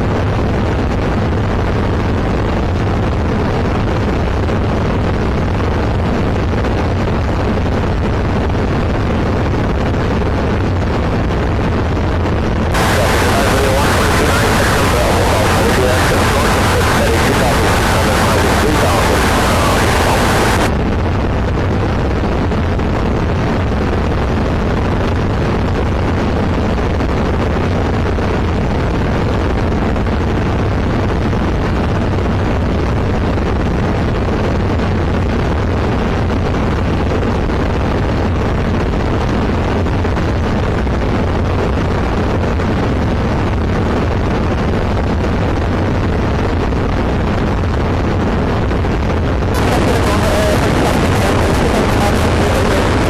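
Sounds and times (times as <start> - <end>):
light aircraft cabin drone: 12.8 - 20.7, 49.6 - 53.0.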